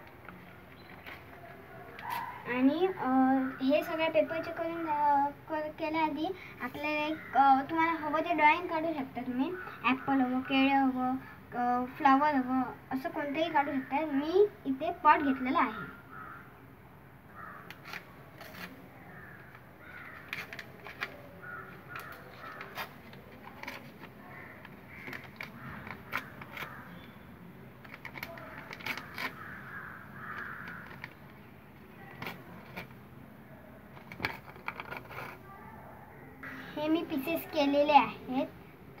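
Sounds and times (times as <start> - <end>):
paper rustling: 17.7 - 26.9, 27.8 - 31.4, 32.0 - 33.0, 33.9 - 35.4
newspaper tearing: 17.8 - 18.8, 28.0 - 29.6.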